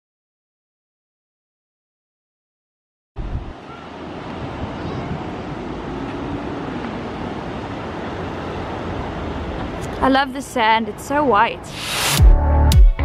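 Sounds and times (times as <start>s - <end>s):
wind on microphone: 3.2s - 10.0s.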